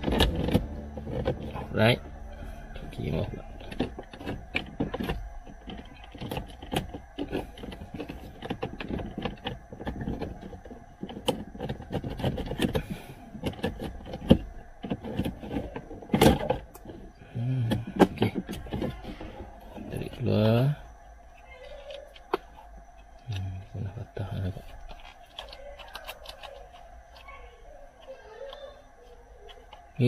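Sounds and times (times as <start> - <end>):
plastic clicks and scrapes: 3.6 - 20.0, 24.3 - 30.0.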